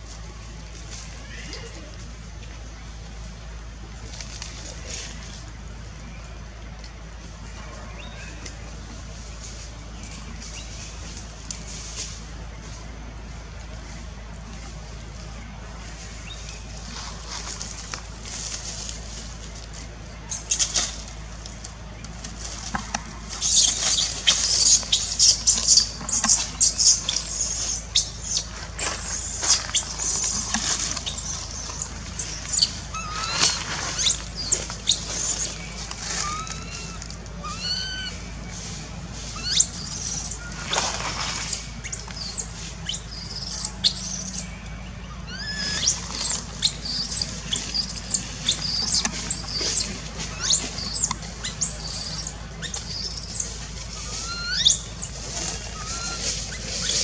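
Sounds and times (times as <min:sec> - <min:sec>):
baby monkey screaming: 0:20.3 - 0:20.8, 0:23.3 - 0:38.2, 0:39.3 - 0:44.5, 0:45.2 - 0:57.0.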